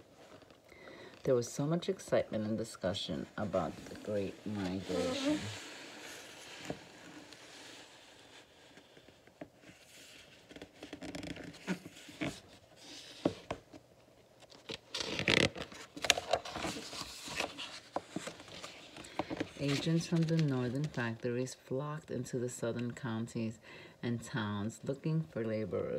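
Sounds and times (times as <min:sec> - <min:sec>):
book pages rustling and turning: 0:00.0 - 0:01.3, 0:02.3 - 0:21.2.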